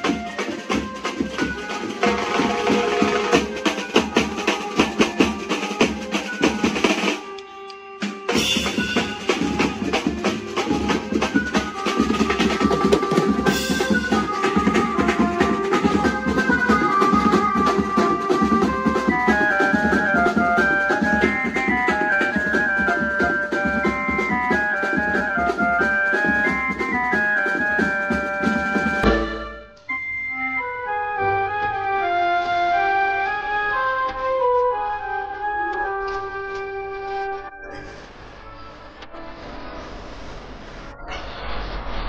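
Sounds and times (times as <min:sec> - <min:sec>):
fast dense drumming: 0:00.0 - 0:07.2, 0:08.3 - 0:29.3
keyboard melody: 0:00.0 - 0:39.5.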